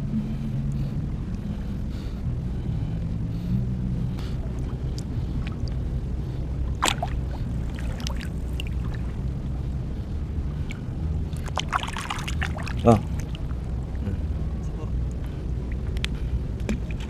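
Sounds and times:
low rumble: 0:00.0 - 0:17.0
shallow water sloshing and splashing: 0:04.2 - 0:10.0, 0:10.6 - 0:14.0.

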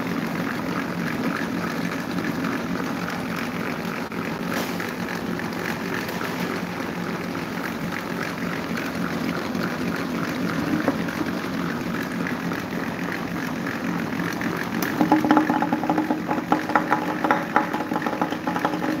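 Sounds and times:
electric fans humming: 0:00.0 - 0:19.0
rapid clicking: 0:14.4 - 0:19.0.

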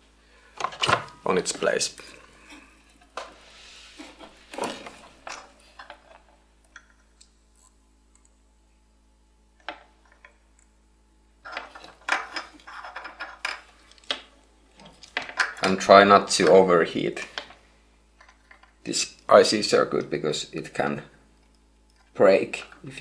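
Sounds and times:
soft hiss: 0:01.2 - 0:04.6.

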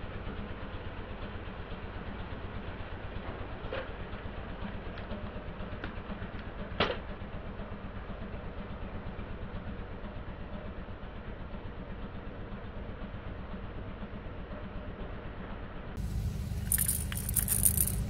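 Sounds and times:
car engine idling: 0:16.0 - 0:18.0.

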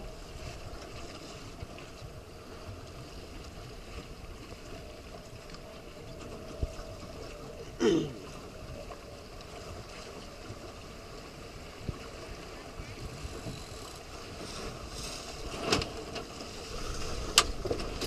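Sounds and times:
water sloshing against boat hull: 0:00.0 - 0:18.0
wind on microphone: 0:04.1 - 0:08.8, 0:11.7 - 0:18.0.

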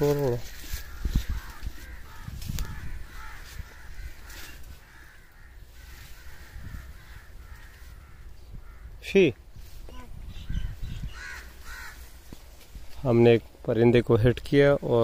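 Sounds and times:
footsteps in brush: 0:00.0 - 0:08.2, 0:11.2 - 0:13.6
rustling through brush: 0:00.0 - 0:08.8, 0:09.4 - 0:13.7
crows cawing: 0:00.0 - 0:09.0, 0:10.5 - 0:12.4.

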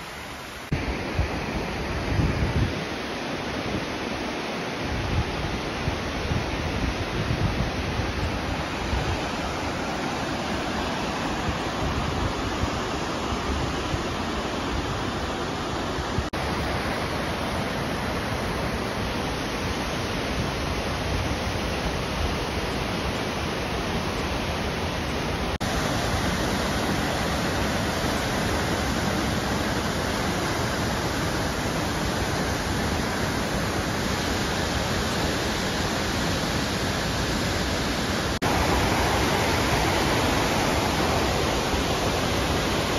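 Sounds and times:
waterfall roaring: 0:00.0 - 0:42.9.

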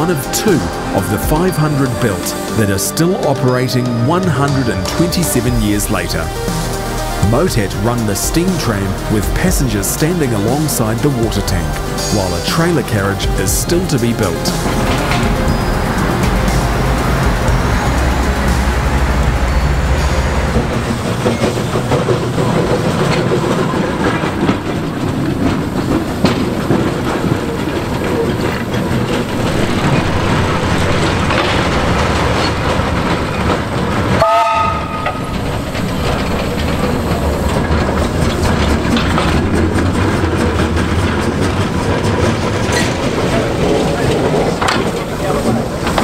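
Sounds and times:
steam tram running on tracks: 0:00.0 - 0:46.0
steam whistle blast: 0:34.2 - 0:35.2.

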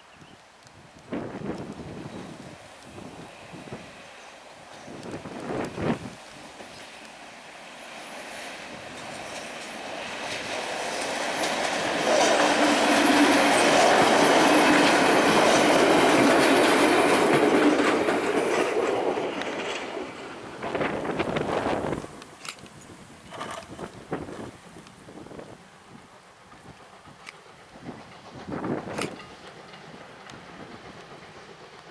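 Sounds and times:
diesel railcar passing by: 0:00.6 - 0:31.9.

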